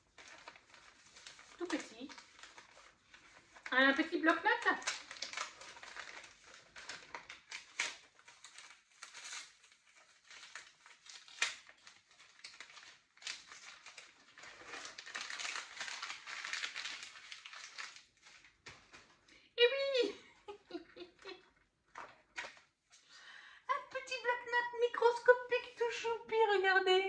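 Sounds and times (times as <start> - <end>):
parcel wrapping crinkling: 0.0 - 19.3.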